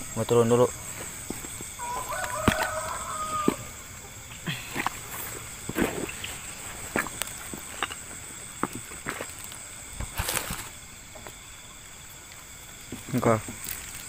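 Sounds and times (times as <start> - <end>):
insects chirring: 0.0 - 14.0
footsteps through leaves and brush: 0.9 - 3.7, 8.7 - 10.8
twigs snapping and crackling: 1.6 - 3.6, 13.0 - 14.0.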